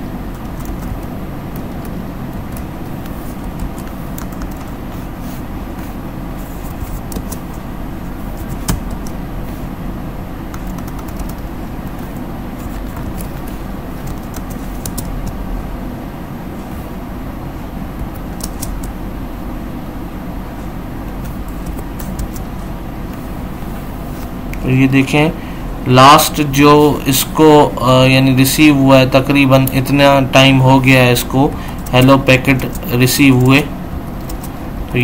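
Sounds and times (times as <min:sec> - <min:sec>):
low background rumble and hum: 0:00.0 - 0:35.0
computer keyboard clicks: 0:02.5 - 0:04.7, 0:10.5 - 0:12.1, 0:12.8 - 0:15.4, 0:18.0 - 0:19.0.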